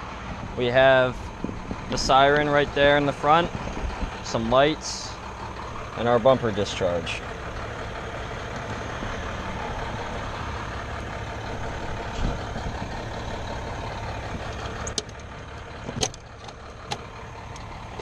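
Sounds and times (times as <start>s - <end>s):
diesel engine idling: 0.0s - 18.0s
sharp metal clicks: 14.4s - 18.0s.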